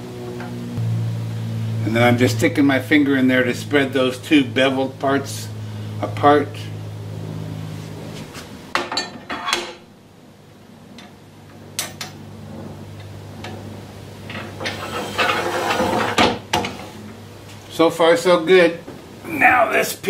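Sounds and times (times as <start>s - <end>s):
metal part scraping and clattering: 9.0s - 9.8s, 14.3s - 16.8s.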